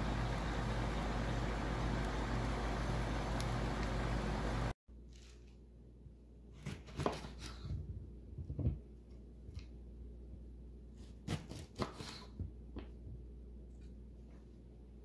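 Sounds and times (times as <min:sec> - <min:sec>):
grill hissing with low hum: 0:00.0 - 0:04.8.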